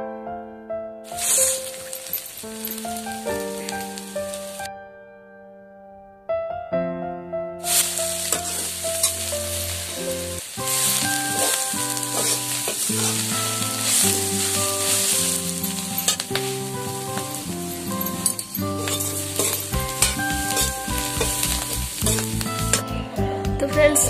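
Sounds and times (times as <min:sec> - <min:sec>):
soft piano-like music: 0:00.0 - 0:24.0
greens sizzling in a pan: 0:01.1 - 0:04.6, 0:07.7 - 0:23.0
metal spatula scraping a pan: 0:07.7 - 0:22.9.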